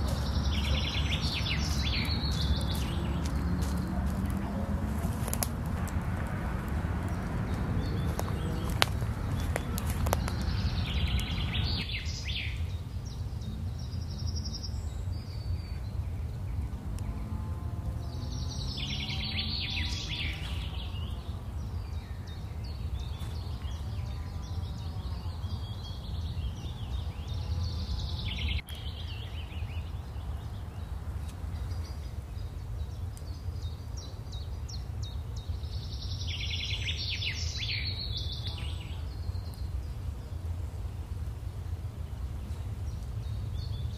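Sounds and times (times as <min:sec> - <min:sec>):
low background rumble: 0:00.0 - 0:19.2.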